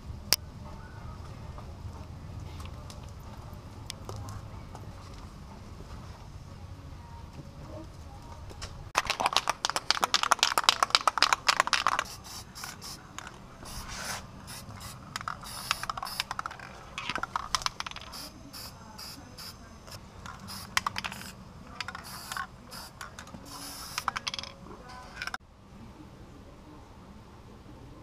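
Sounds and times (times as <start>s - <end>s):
spray can ball rattling: 9.0s - 25.4s
spray can hissing: 9.2s - 24.4s.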